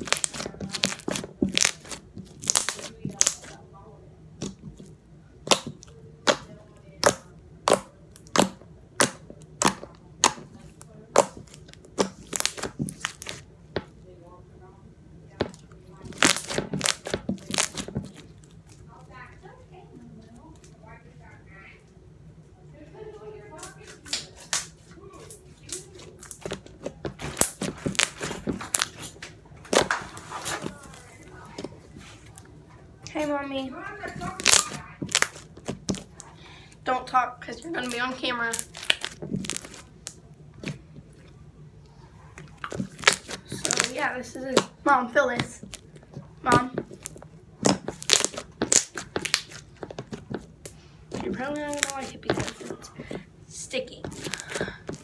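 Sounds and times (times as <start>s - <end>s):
slime popping and clicking: 5.4s - 13.4s, 34.4s - 36.0s, 46.8s - 52.5s.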